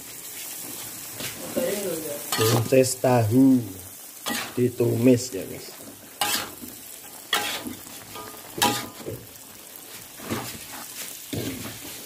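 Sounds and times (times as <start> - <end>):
food sizzling in a wok: 0.0 - 12.0
spatula scraping a wok: 2.3 - 2.7, 4.2 - 4.6, 6.2 - 12.0.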